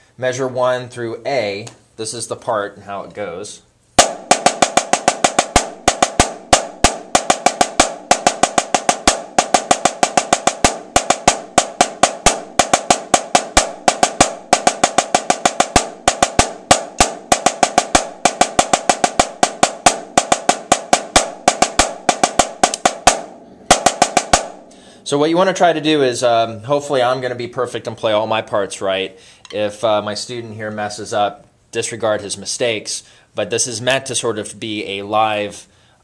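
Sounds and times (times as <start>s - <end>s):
snare drum solo: 4.0s - 26.0s.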